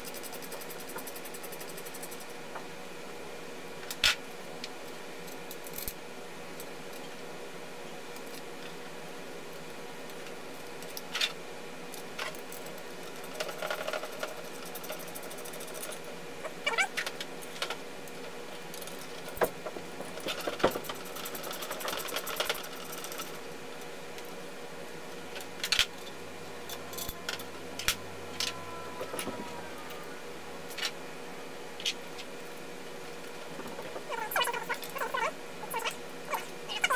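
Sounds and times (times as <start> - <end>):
faint steady hum: 0.0 - 36.9
clicks and clatter of handled parts: 3.8 - 6.0, 9.5 - 16.0, 17.0 - 23.4, 25.3 - 29.4, 30.7 - 31.0.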